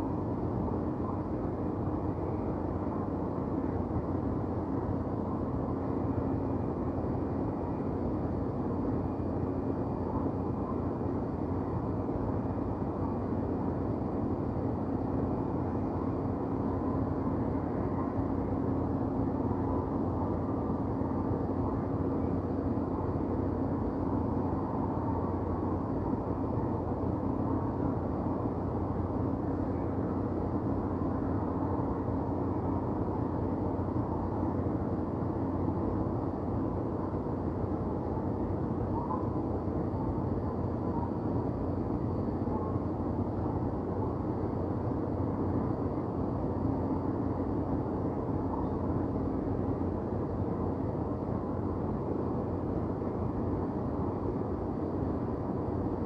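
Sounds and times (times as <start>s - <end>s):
constant hum: 0.0s - 56.0s
low rumble of city ambience: 0.0s - 56.0s.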